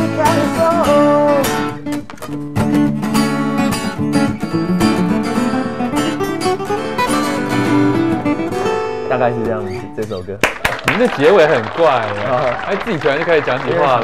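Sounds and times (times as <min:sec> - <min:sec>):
acoustic guitar strummed and picked: 0:00.0 - 0:10.4.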